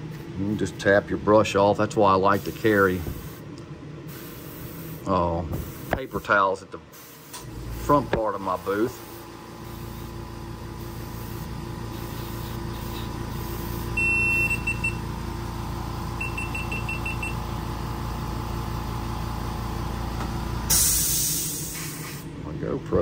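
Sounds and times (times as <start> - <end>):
exhaust fan humming: 0.0 - 23.0
airbrush spraying hiss: 2.3 - 3.5, 4.1 - 8.0, 8.6 - 14.0, 20.7 - 22.2.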